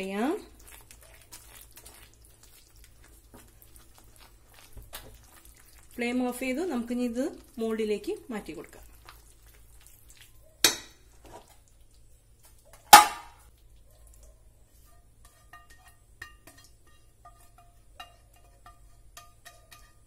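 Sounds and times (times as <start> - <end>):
metal cookware clanking: 10.6 - 11.0
light metal taps and scrapes: 14.1 - 20.0.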